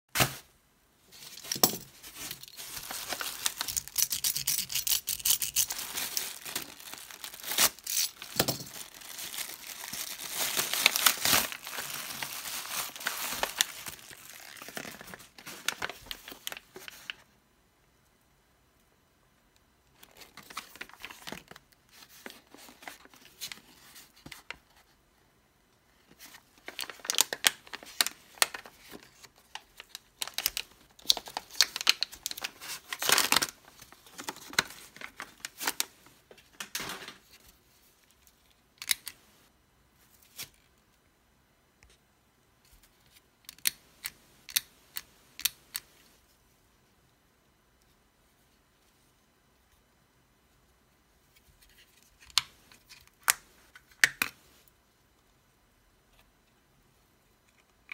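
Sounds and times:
plastic pouch tearing and crinkling: 0:02.1 - 0:16.9, 0:26.6 - 0:35.9.

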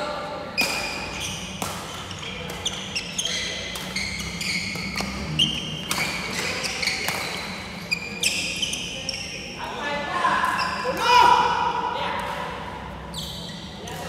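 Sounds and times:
racket hitting shuttlecock: 0:00.6 - 0:07.5
shoes squeaking on wooden floor: 0:01.1 - 0:09.5.

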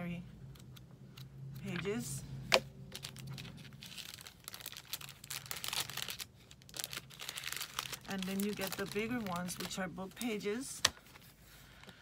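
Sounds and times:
paper and plastic crinkling: 0:02.9 - 0:11.4.

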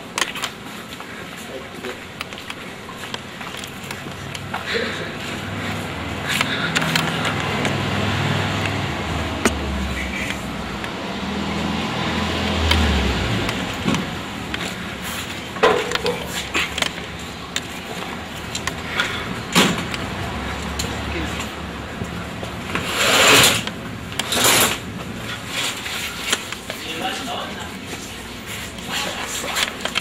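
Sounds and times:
street noise: 0:00.0 - 0:30.0
vehicle engine rumbling: 0:00.0 - 0:30.0.

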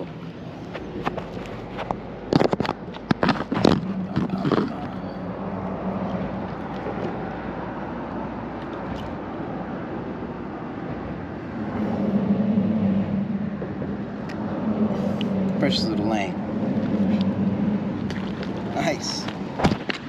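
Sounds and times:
low engine hum: 0:00.0 - 0:20.0
rushing noise: 0:09.5 - 0:19.8.

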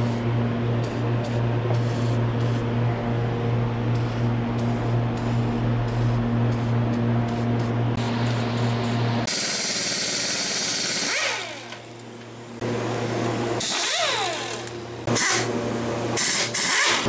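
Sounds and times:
pneumatic impact wrench: 0:08.0 - 0:11.9, 0:13.6 - 0:15.5, 0:16.2 - 0:17.0.

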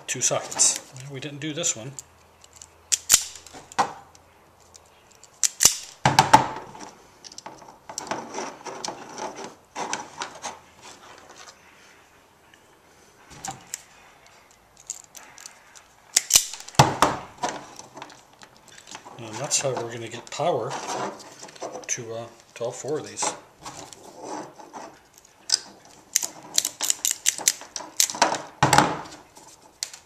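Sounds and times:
wire stripper snapping shut: 0:02.9 - 0:04.0, 0:05.4 - 0:06.0, 0:16.2 - 0:17.2.

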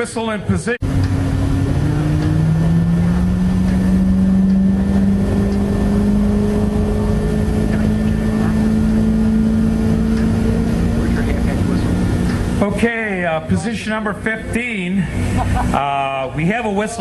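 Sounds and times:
deep steam whistle: 0:01.3 - 0:10.9.

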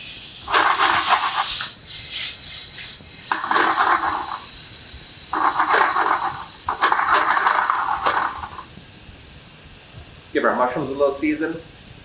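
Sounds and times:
tongs scraping a pan: 0:03.3 - 0:04.4, 0:05.4 - 0:08.6
mushrooms sizzling in oil: 0:03.3 - 0:09.4.

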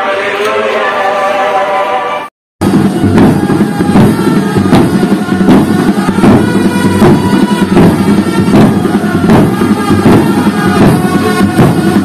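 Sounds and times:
barrel drums playing fast rhythm: 0:02.6 - 0:12.0.

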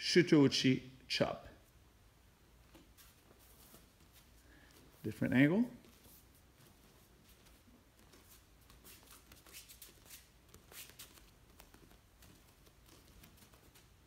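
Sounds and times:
faint soft ticks and rustles: 0:02.6 - 0:14.0.

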